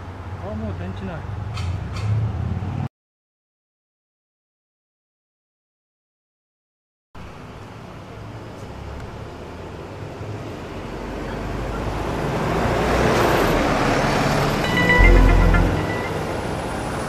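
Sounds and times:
bus passing by: 0:00.0 - 0:02.9, 0:07.4 - 0:17.0.

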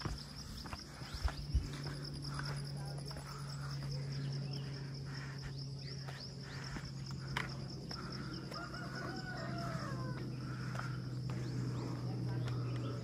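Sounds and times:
footsteps on stone steps: 0:00.0 - 0:13.0
steady low hum: 0:00.0 - 0:13.0
rooster crowing: 0:08.1 - 0:10.7.

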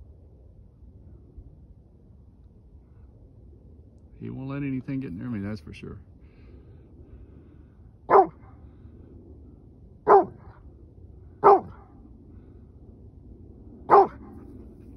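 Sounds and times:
dog barking loudly: 0:08.1 - 0:08.4, 0:10.1 - 0:10.4, 0:11.4 - 0:11.8, 0:13.9 - 0:14.3.

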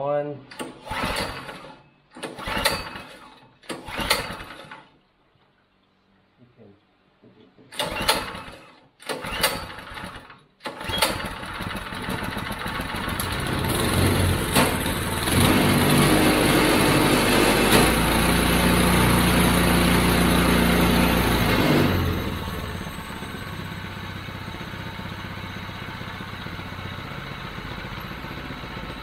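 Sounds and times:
engine pull-start cranking: 0:00.5 - 0:05.0, 0:07.7 - 0:19.6
small engine running: 0:07.8 - 0:29.0.

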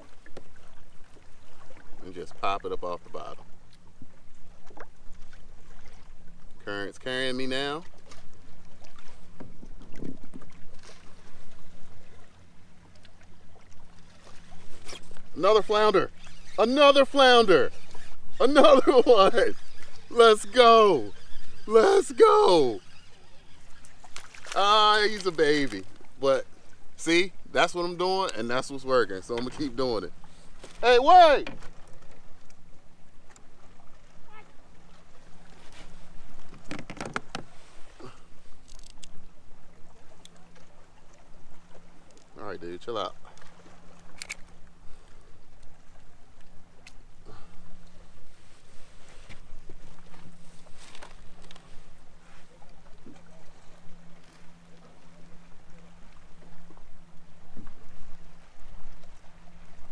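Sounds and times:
faint steady hum: 0:00.0 - 0:59.9
water and wind hiss: 0:00.0 - 0:59.9
waves lapping against kayak hull: 0:00.0 - 0:59.9
fish flapping knocks: 0:36.4 - 0:37.5.

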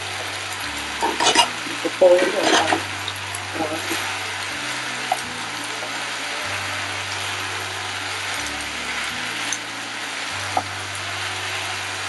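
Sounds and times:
noodles sizzling in a frying pan: 0:00.0 - 0:12.0
wooden spatula stirring: 0:01.0 - 0:02.9.

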